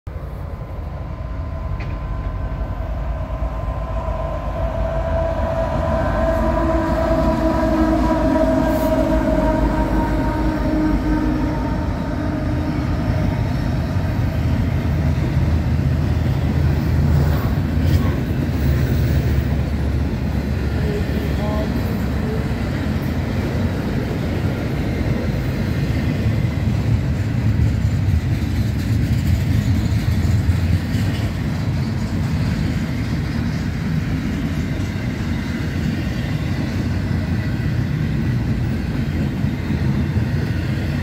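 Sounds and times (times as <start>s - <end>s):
diesel locomotives rumbling: 0.1s - 41.0s
train wheels rumbling on rail: 0.1s - 41.0s
multi-note train air horn: 4.7s - 13.9s.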